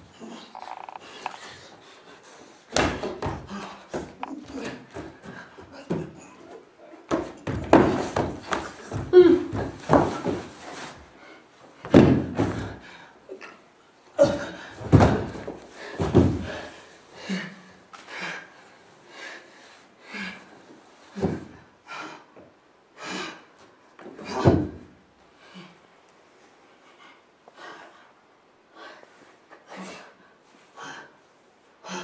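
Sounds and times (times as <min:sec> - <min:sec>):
body thudding on wooden floor: 0:02.7 - 0:06.3, 0:07.1 - 0:10.9, 0:11.8 - 0:12.8, 0:14.2 - 0:16.7.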